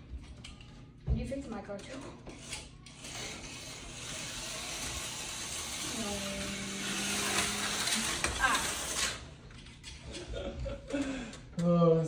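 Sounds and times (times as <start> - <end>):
slot car motor whirring: 2.3 - 9.4.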